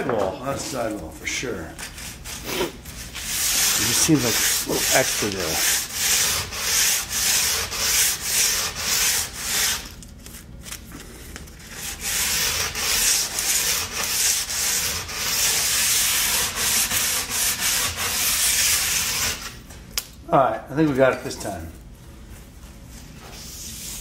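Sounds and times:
hand file rasping on plastic: 0:03.3 - 0:09.9, 0:11.7 - 0:19.5.

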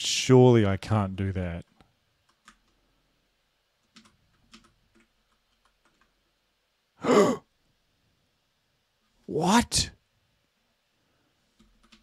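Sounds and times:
computer keyboard keystrokes: 0:01.7 - 0:02.8, 0:03.8 - 0:06.2, 0:11.6 - 0:12.0.

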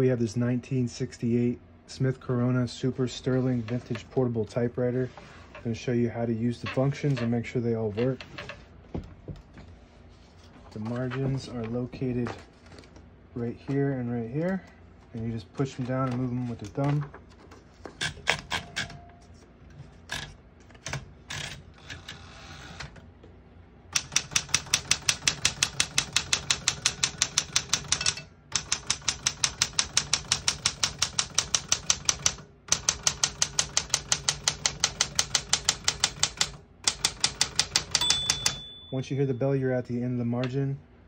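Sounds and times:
typewriter keystrokes: 0:23.9 - 0:38.7
typewriter mechanical clicks: 0:23.9 - 0:38.7.

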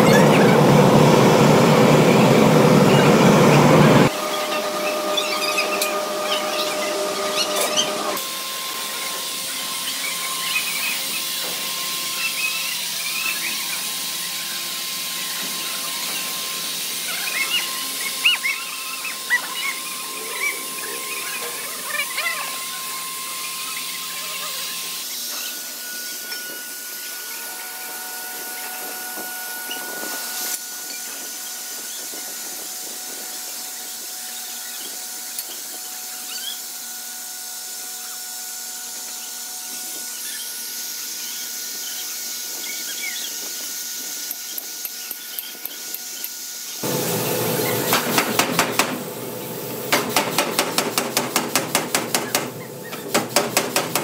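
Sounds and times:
workshop hiss: 0:00.0 - 0:54.0
hammering on steel: 0:49.9 - 0:54.0.

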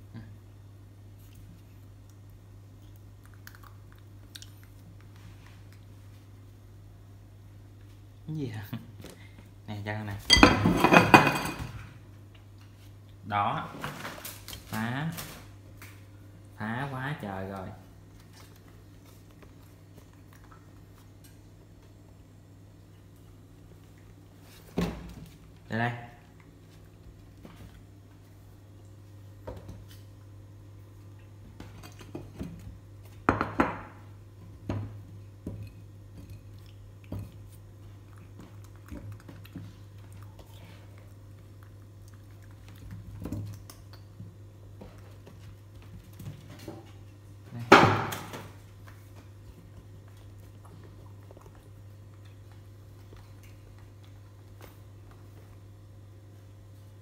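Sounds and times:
steady low hum: 0:00.0 - 0:57.0
objects knocking and clattering: 0:10.3 - 0:11.8.

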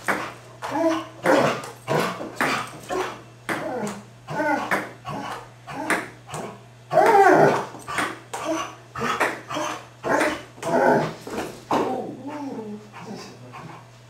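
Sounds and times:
dog whining and yelping: 0:00.6 - 0:01.6.

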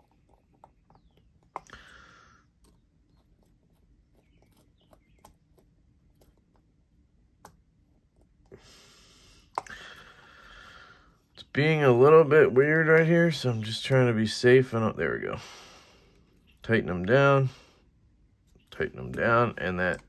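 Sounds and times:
soft breaths: 0:01.6 - 0:03.3, 0:08.4 - 0:11.5, 0:15.2 - 0:18.1.

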